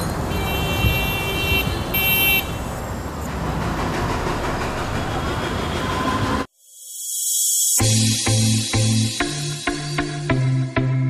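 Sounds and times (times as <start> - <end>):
road traffic: 0.0 - 6.6
vehicle horn honking: 0.3 - 2.7.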